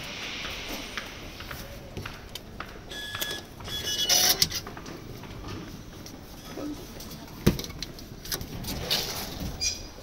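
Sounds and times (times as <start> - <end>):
ticket gate beeps: 2.9 - 4.4.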